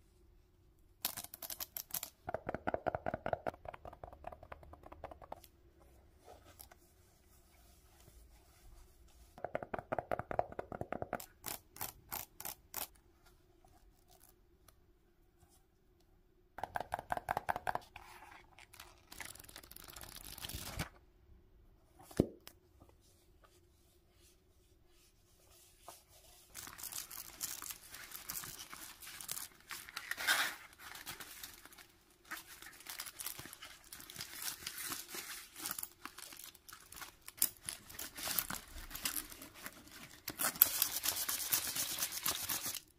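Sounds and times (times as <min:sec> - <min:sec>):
pencil pouch crinkling: 0:26.4 - 0:42.9.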